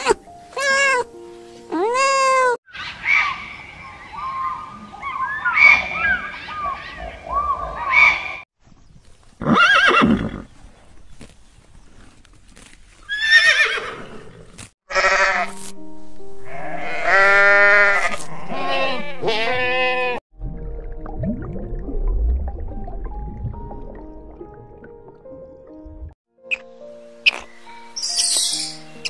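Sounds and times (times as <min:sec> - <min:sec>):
background music: 0:00.0 - 0:02.5, 0:15.0 - 0:29.0
animal call: 0:02.0 - 0:08.4
horse whinnying: 0:09.4 - 0:10.5, 0:13.1 - 0:15.4
sheep bleating: 0:14.9 - 0:15.6, 0:16.4 - 0:20.2.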